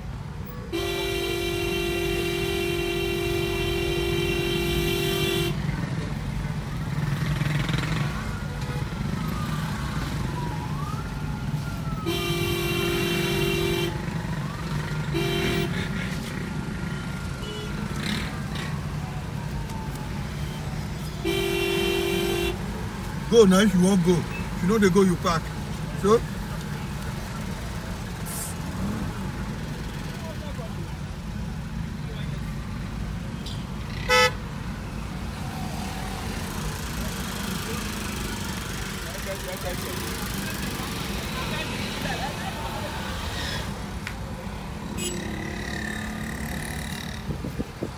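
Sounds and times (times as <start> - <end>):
traffic engines rumbling: 0.0 - 47.9
vehicle horn blast: 0.7 - 5.6, 12.1 - 14.0, 15.1 - 15.8, 21.2 - 22.6, 34.0 - 34.4
faint siren wailing: 7.6 - 15.2, 16.7 - 21.2, 34.8 - 38.3.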